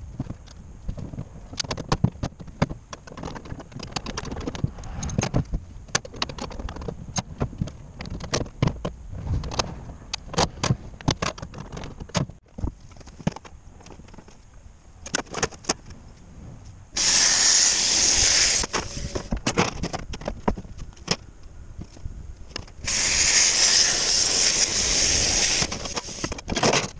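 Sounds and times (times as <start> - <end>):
air tool cutting metal sheet: 17.0 - 19.3, 22.8 - 26.4.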